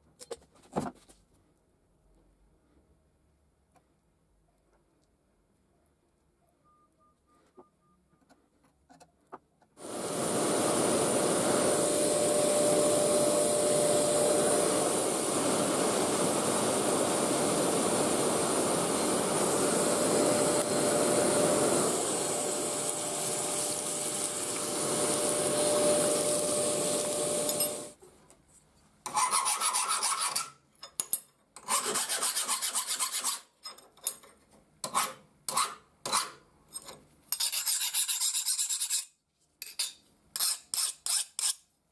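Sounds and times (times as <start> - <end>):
air rushing through forge fire: 9.8 - 28.0
hand file scraping steel: 29.1 - 30.6, 31.6 - 33.5, 34.8 - 41.7.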